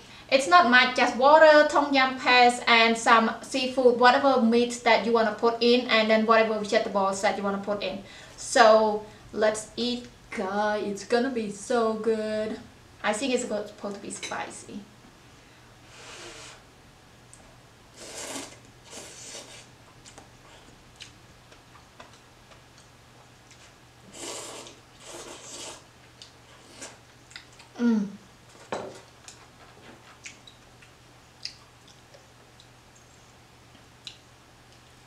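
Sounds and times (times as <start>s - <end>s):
noodles being slurped: 18.0s - 19.7s, 24.1s - 25.9s.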